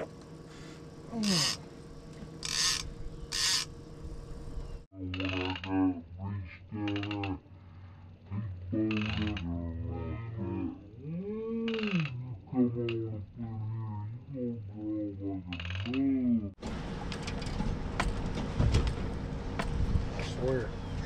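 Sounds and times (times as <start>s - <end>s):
fishing reel ratchet clicking: 2.4s - 3.7s.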